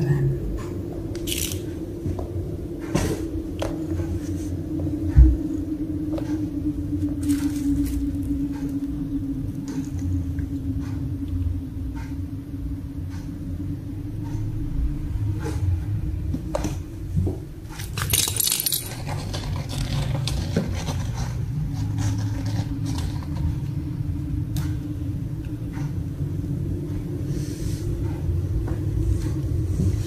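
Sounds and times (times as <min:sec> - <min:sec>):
steady low rumble: 0:00.0 - 0:30.0
metallic jingling: 0:17.9 - 0:19.3.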